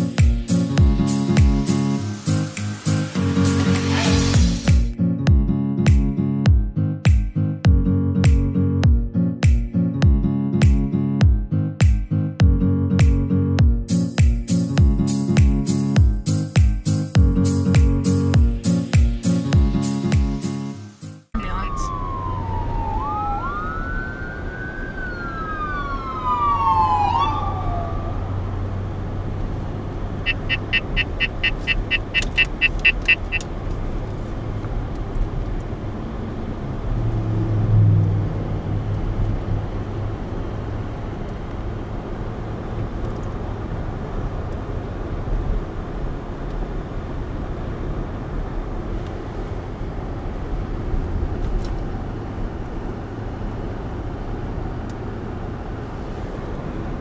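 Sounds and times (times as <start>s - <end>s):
car road and engine noise: 0.0s - 57.0s
siren wailing: 21.4s - 28.6s
short even beeps: 30.3s - 33.4s.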